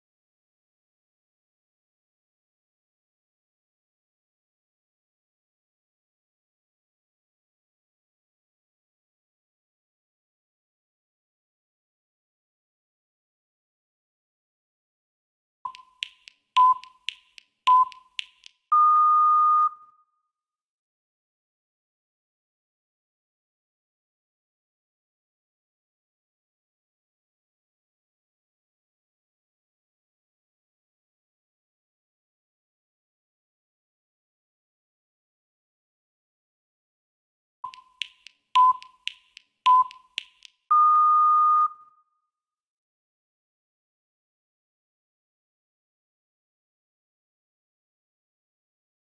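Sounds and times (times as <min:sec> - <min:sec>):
faint clicks: 0:15.7 - 0:18.7, 0:37.6 - 0:40.6
interval timer beeping: 0:15.7 - 0:19.8, 0:37.6 - 0:41.8.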